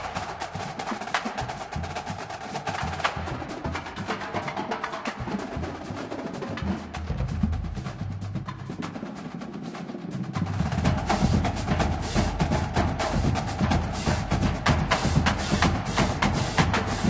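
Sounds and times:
snare drum and stick clicks: 0:00.0 - 0:05.6.

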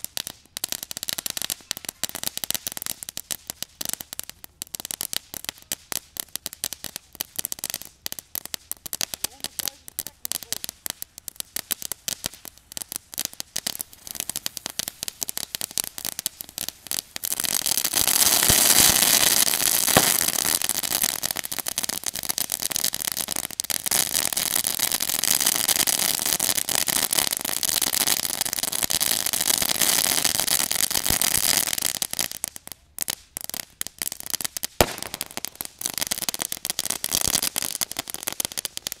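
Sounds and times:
firework fountain crackling: 0:00.0 - 0:39.0
firework fountain hissing: 0:06.8 - 0:39.0
sharp pop: 0:34.8 - 0:35.4.

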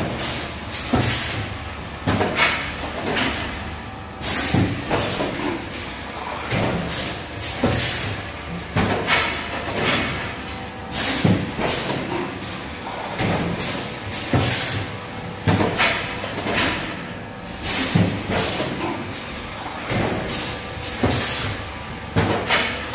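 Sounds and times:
machine mechanism clunking: 0:10.9 - 0:22.9.

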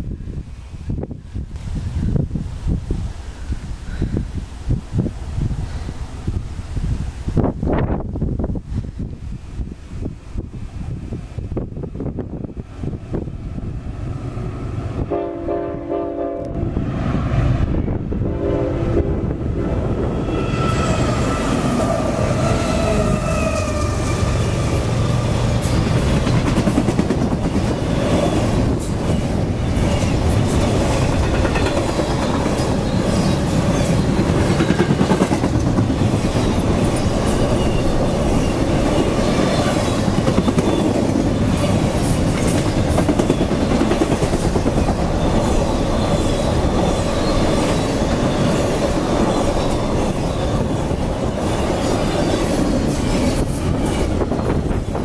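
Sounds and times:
freight train wheels rumbling: 0:00.0 - 0:55.0
wheel squeal: 0:36.4 - 0:39.2, 0:44.8 - 0:50.7.

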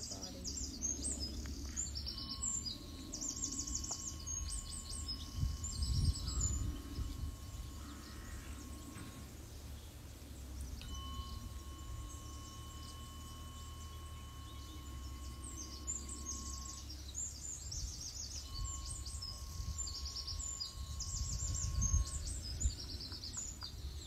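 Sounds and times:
birds chirping: 0:00.0 - 0:24.0
low rumble: 0:00.0 - 0:24.0
tuning fork ringing: 0:00.0 - 0:24.0.

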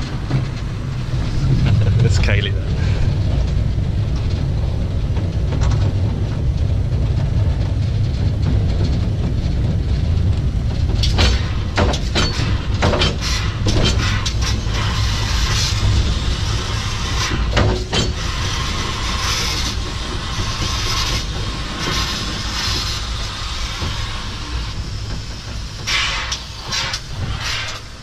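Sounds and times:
steam locomotive rumble and clatter: 0:00.0 - 0:28.0
sharp clicks and knocks: 0:07.6 - 0:14.7.

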